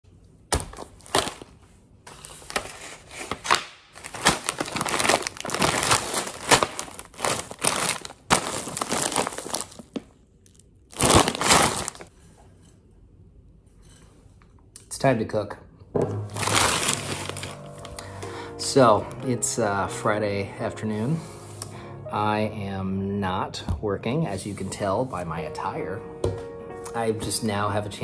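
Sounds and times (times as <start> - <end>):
plastic bags crinkling: 0.6 - 12.2, 16.3 - 18.2.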